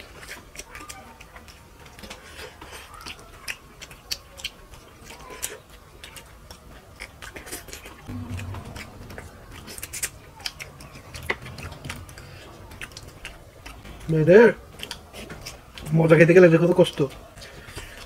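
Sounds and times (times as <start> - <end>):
wet chewing and lip smacks: 0.0 - 8.0, 12.9 - 18.0
brief low hum: 8.1 - 12.8.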